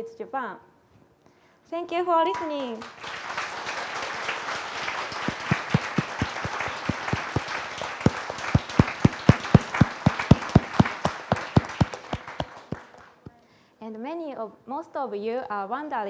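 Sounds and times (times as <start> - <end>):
audience applauding: 2.3 - 13.2
loud close claps: 2.3 - 13.3.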